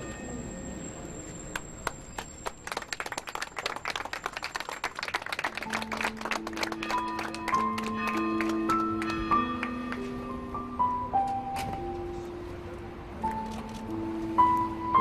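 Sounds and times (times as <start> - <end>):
crowd applauding: 1.5 - 10.1
music: 5.3 - 15.0.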